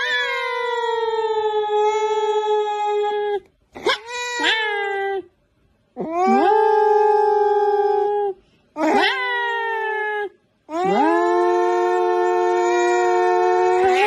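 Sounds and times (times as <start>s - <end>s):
cat yowling: 0.0s - 5.3s, 6.0s - 14.0s.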